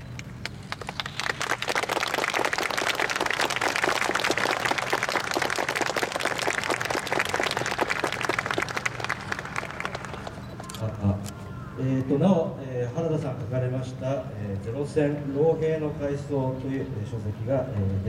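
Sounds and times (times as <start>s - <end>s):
audience applauding: 0.4s - 10.8s.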